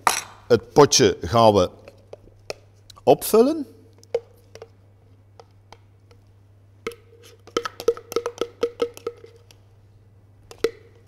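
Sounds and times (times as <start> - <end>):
spoon knocking in plastic beaker: 6.8 - 9.4, 10.4 - 11.0.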